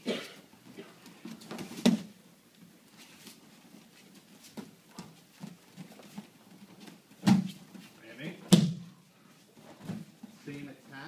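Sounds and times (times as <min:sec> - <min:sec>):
thumps of bodies on mat: 0:01.3 - 0:02.2, 0:06.9 - 0:07.8, 0:08.4 - 0:08.9.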